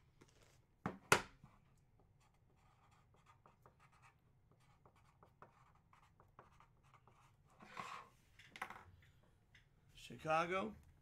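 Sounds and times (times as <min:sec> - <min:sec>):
pen scratching on paper: 0:02.2 - 0:08.0.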